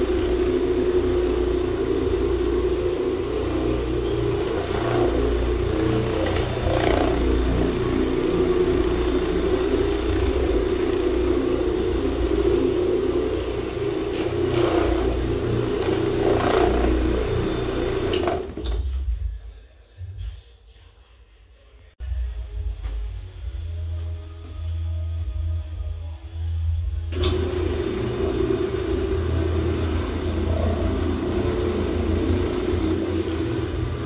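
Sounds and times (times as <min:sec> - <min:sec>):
carpet cleaning machine motor humming: 0:00.0 - 0:19.0, 0:27.1 - 0:34.0.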